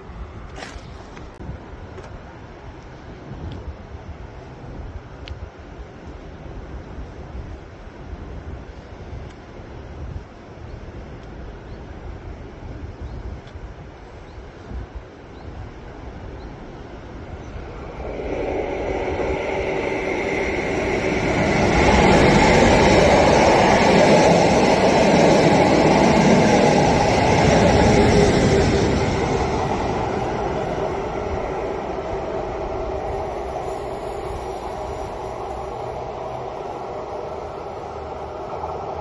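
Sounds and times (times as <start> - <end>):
electric locomotive passing: 16.8 - 39.0
train wheels on rails: 17.3 - 39.0.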